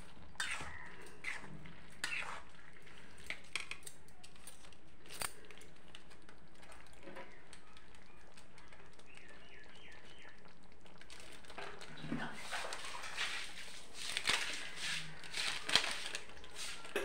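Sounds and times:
metal spatula scraping a pan: 0.3s - 2.6s
faint high chirps: 7.2s - 10.5s.

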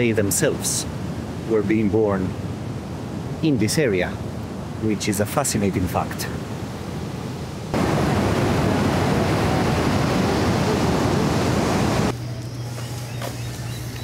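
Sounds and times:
surf breaking on beach: 7.7s - 12.1s.

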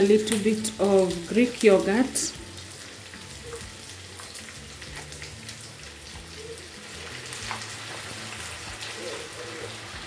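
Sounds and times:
food sizzling in a pan: 0.0s - 10.0s
small crackles: 3.4s - 9.4s.

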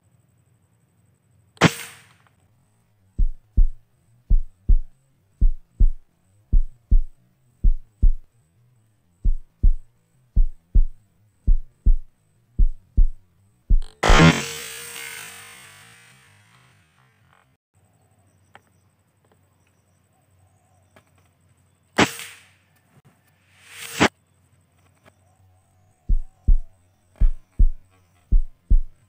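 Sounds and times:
rifle shot: 1.6s - 2.2s
heartbeat thumps: 3.2s - 8.3s, 9.2s - 14.0s, 26.1s - 29.0s.

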